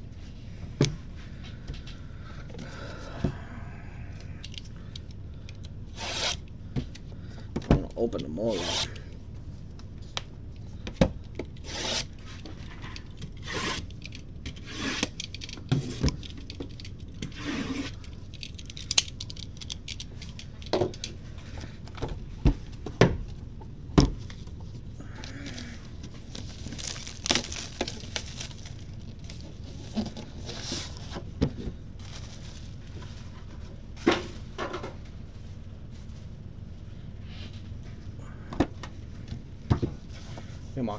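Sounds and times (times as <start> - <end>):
plastic wrap rustling: 25.5 - 31.0, 32.0 - 33.2.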